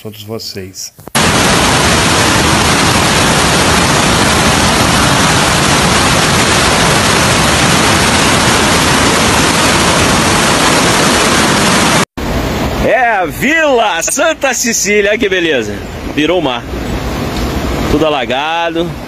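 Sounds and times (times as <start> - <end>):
floodwater rushing: 1.2 - 13.3.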